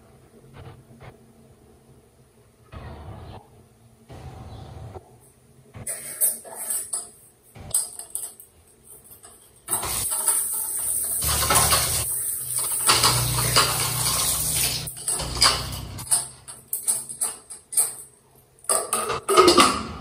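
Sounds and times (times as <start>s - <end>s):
utensils clinking against pot: 5.9s - 20.0s.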